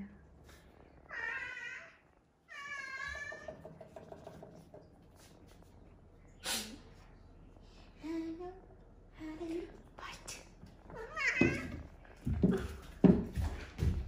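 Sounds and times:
cat meowing: 1.1s - 3.5s, 11.0s - 11.8s.

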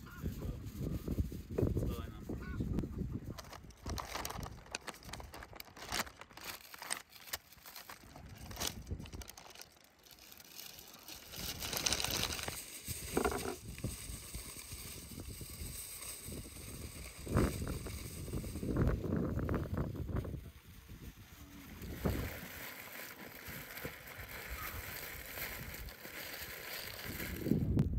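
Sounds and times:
paper and foil crinkling: 3.0s - 27.8s.

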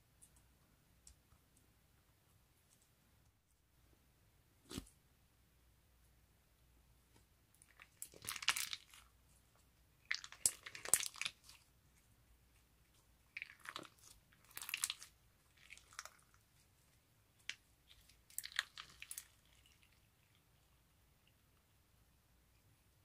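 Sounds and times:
crunchy slime crackling: 7.6s - 9.1s, 10.0s - 11.7s, 13.3s - 16.6s, 17.3s - 20.4s.

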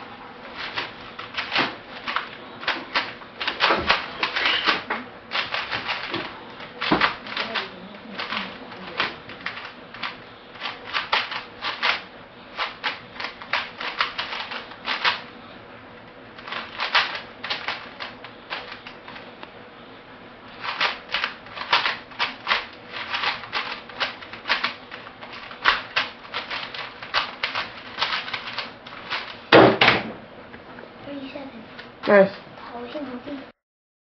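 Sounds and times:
puzzle cube clicking: 20.6s - 29.4s.

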